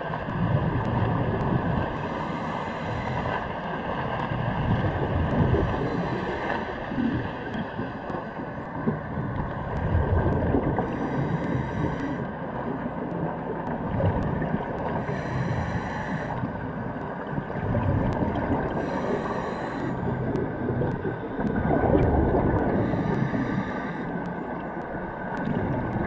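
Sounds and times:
faint clicking: 0:00.0 - 0:26.0
low rumbling bubbles: 0:00.0 - 0:26.0
underwater hum: 0:00.0 - 0:26.0
scuba regulator inhale hiss: 0:10.9 - 0:12.2, 0:15.0 - 0:16.4, 0:18.8 - 0:20.0, 0:22.8 - 0:24.1.

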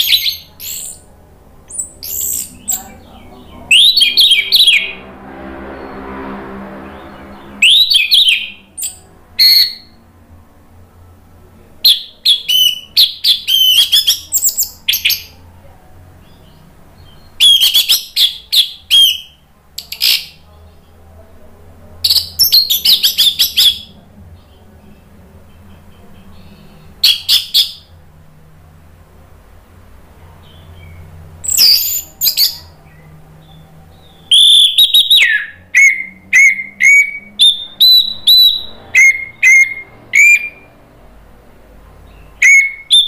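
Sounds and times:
low hum: 0:00.4 - 0:11.8.

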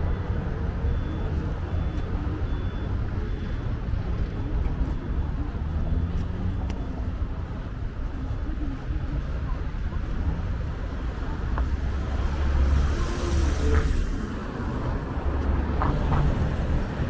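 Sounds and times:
faint high beep: 0:00.0 - 0:07.2
faint voices: 0:00.0 - 0:16.2
road traffic rumble: 0:00.0 - 0:17.0.

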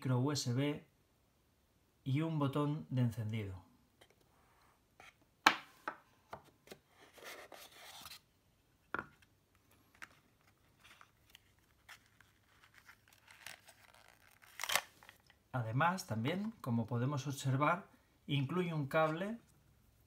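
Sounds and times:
cardboard rustling: 0:06.4 - 0:08.3, 0:09.6 - 0:15.3.

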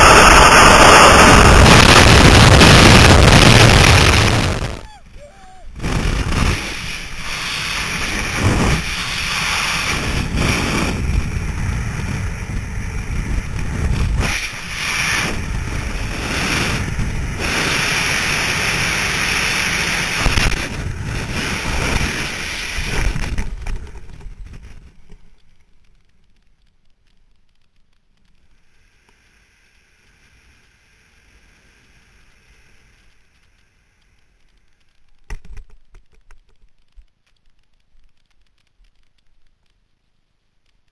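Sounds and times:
wind rushing over microphone: 0:00.0 - 0:25.0.

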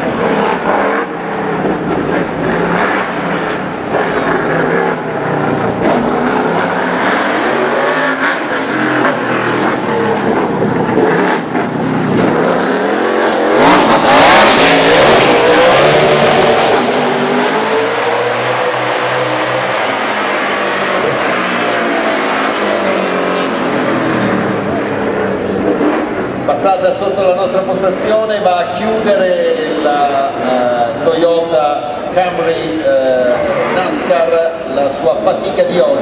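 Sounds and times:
race car engine at high revs: 0:00.0 - 0:36.0.

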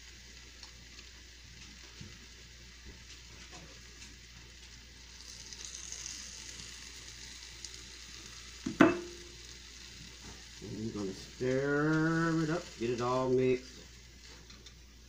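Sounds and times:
food sizzling in a frying pan: 0:00.0 - 0:15.0
sharp metal clank: 0:08.8 - 0:09.2.

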